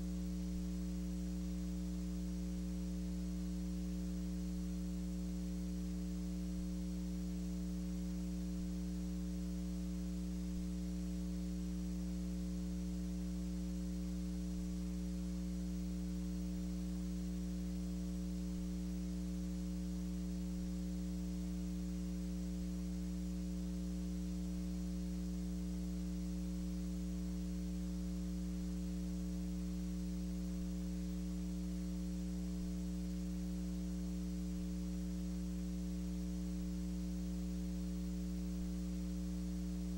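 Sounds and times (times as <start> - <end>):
electrical mains hum: 0.0 - 39.9.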